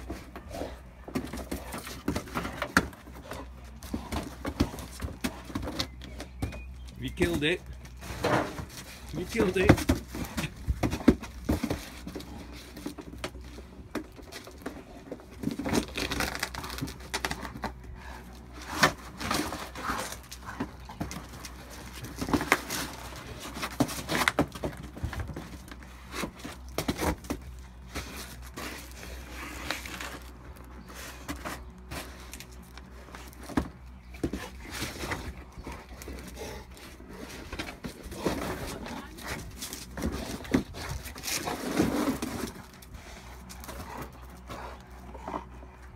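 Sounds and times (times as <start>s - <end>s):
cardboard box crumpling: 14.2s - 17.7s.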